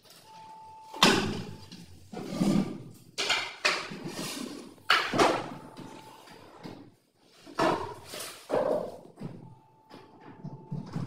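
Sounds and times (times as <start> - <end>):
metal drawer slides scraping: 2.1 - 2.9, 3.9 - 4.8.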